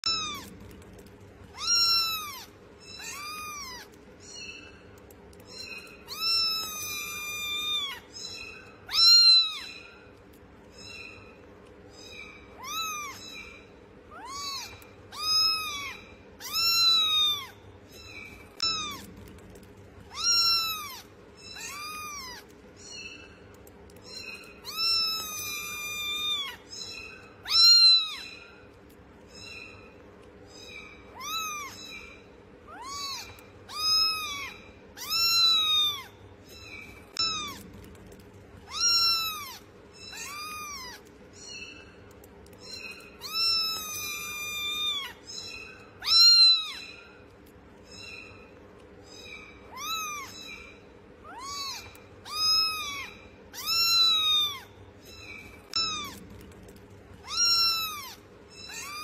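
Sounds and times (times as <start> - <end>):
kitten meowing: 0.0 - 4.5, 5.4 - 9.8, 12.0 - 13.5, 14.1 - 19.3, 20.1 - 22.5, 24.0 - 28.4, 30.6 - 32.1, 32.7 - 37.8, 38.6 - 41.1, 42.5 - 46.9, 49.2 - 50.6, 51.2 - 56.3, 57.2 - 59.0.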